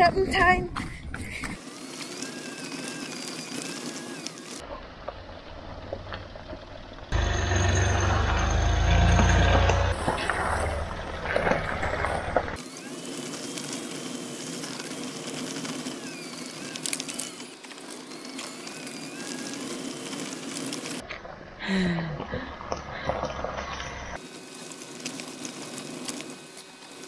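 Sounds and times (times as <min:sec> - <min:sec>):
diesel engine running: 0:01.5 - 0:12.6
tyres crunching over gravel: 0:02.0 - 0:21.0, 0:23.1 - 0:27.0.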